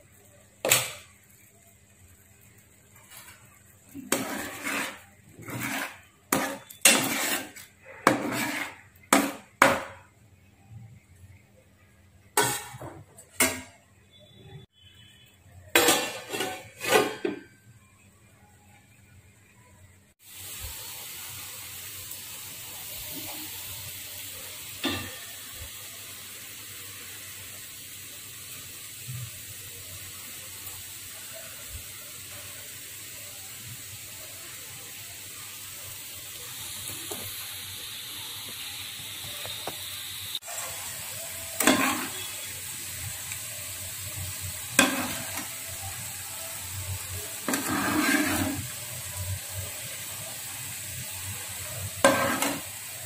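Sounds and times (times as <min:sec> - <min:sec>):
gravy sizzling in a frying pan: 0:00.0 - 0:53.0
spatula scraping and knocking pan: 0:03.0 - 0:10.1, 0:12.4 - 0:13.8, 0:15.8 - 0:17.5, 0:41.6 - 0:42.4, 0:44.7 - 0:45.5, 0:47.4 - 0:48.7, 0:52.0 - 0:52.7.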